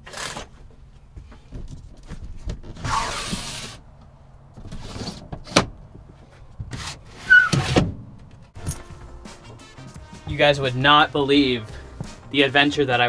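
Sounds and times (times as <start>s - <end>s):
loud scraping rub: 2.8s - 3.8s
brief squeak: 7.2s - 7.7s.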